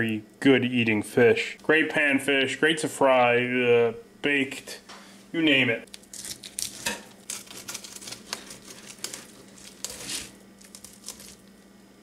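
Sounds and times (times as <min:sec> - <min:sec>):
knife scraping through fish: 0:06.2 - 0:11.4.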